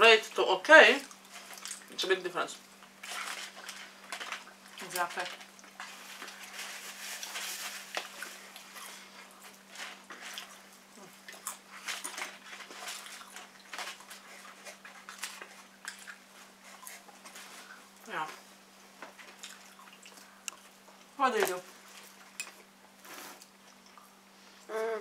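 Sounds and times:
low electrical hum: 0.0 - 25.0
chewing and lip smacks: 19.3 - 21.0.

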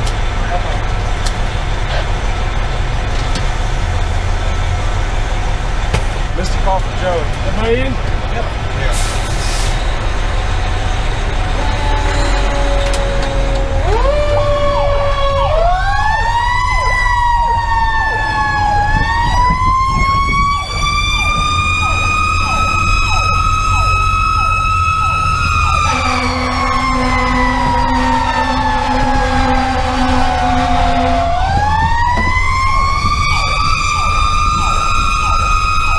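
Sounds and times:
diesel truck engine rumble: 0.0 - 35.9
low air horn blast: 11.5 - 14.3, 25.8 - 31.5
mechanical siren whine: 11.5 - 35.9
electronic siren yelps: 11.6 - 35.9.

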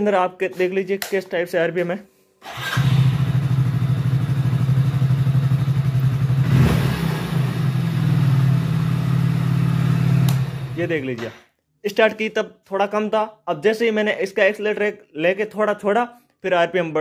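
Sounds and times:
motorcycle engine idling: 3.0 - 6.5
throttle blip: 10.2 - 10.7.

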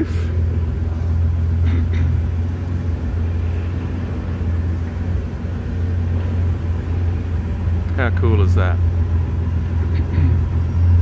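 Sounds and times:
convertible top motor humming: 0.0 - 11.0.

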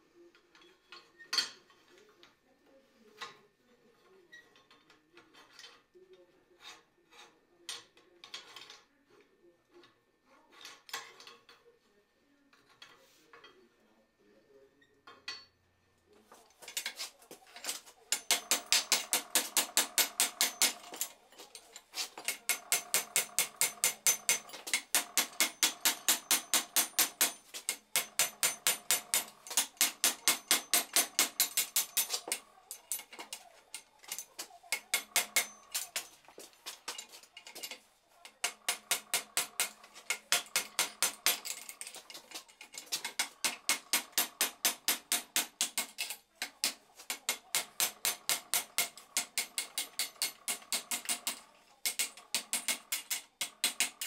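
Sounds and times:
hammer striking metal on anvil: 18.1 - 21.1, 22.2 - 33.3, 34.1 - 36.2, 38.4 - 42.0, 42.9 - 54.0.

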